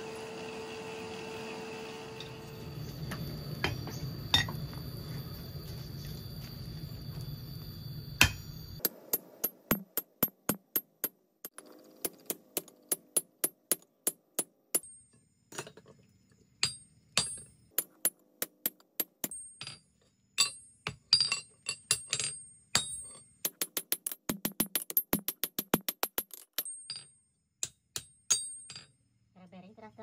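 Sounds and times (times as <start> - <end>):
hammer striking steel punch: 8.2 - 15.0.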